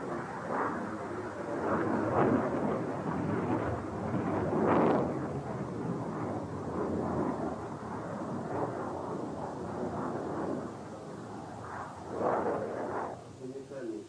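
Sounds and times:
fighter jet engines rumbling: 0.0 - 14.0.

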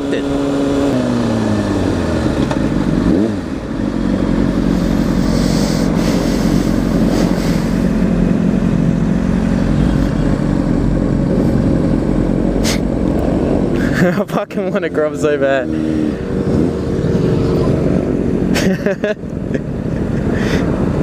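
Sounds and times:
motorcycle engine revving: 0.0 - 14.0, 14.6 - 18.8.

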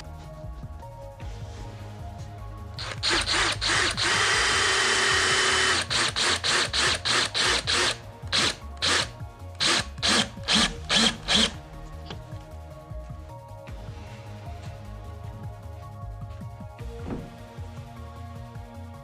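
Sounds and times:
power drill motor whine: 2.8 - 11.6.

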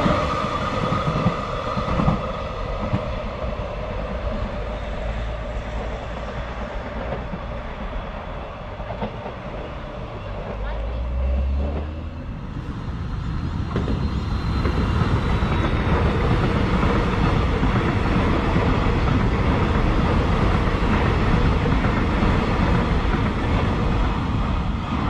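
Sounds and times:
train wheels rumbling on rails: 0.0 - 25.0.

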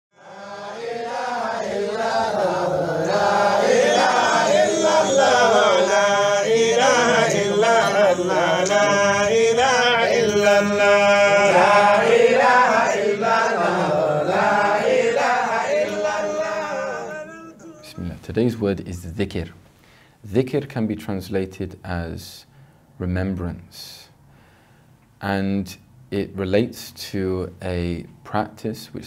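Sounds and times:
melodic vocal chanting: 0.1 - 18.2.

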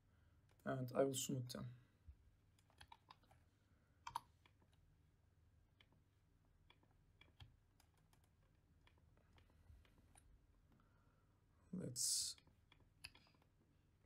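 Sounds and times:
mouse and keyboard clicks: 2.6 - 3.4, 4.0 - 4.8, 5.8 - 10.2, 12.4 - 13.6.

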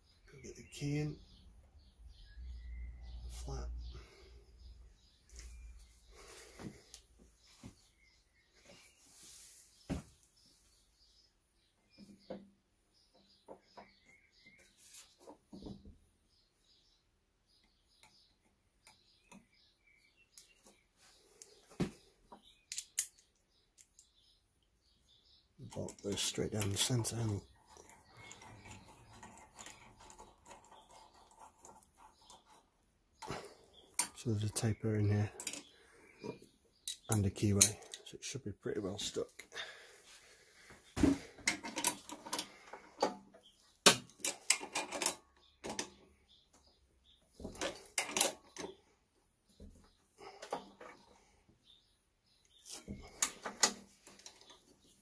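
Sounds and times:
faint bird chirps: 0.0 - 12.5, 13.1 - 41.3.

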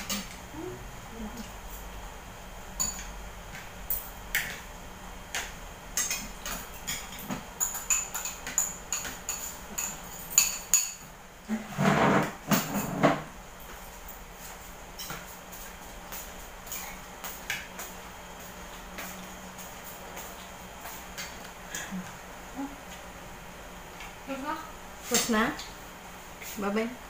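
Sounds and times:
cutlery clinking on ceramic plates: 6.0 - 11.0
plastic chair scraping on floor: 11.5 - 13.3.

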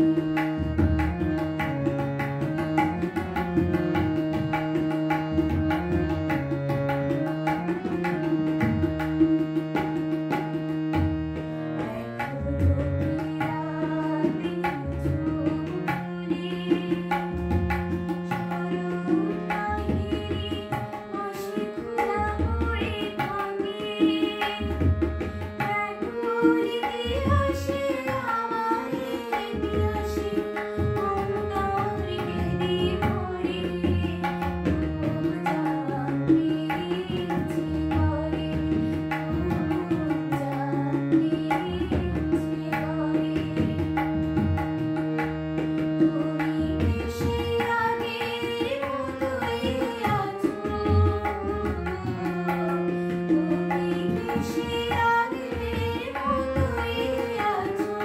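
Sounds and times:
woman singing: 0.0 - 1.7, 11.9 - 44.5, 46.0 - 58.0
harmonium chords: 0.0 - 58.0.

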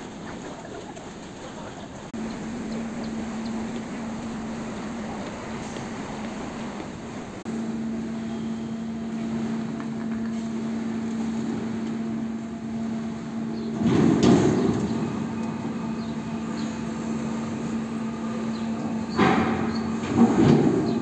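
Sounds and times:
machinery electric hum: 0.0 - 21.0
loud rumbling clatter: 13.6 - 21.0.

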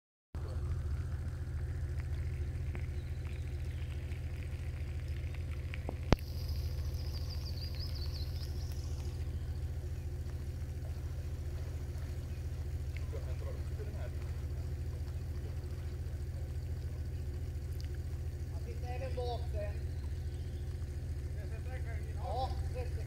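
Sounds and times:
vehicle engine idling: 0.4 - 23.0
bird twittering: 1.2 - 5.4, 6.2 - 23.0.

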